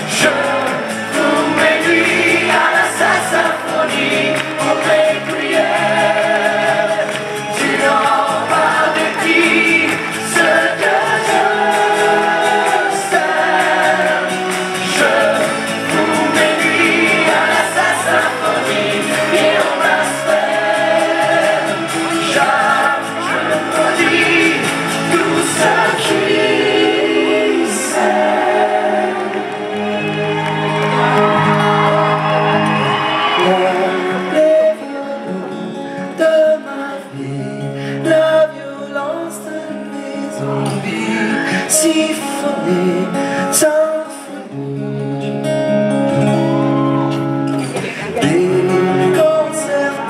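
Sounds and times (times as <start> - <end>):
cast singing as an ensemble: 0.0 - 37.3, 47.8 - 50.0
live band with strings and guitar: 0.0 - 50.0.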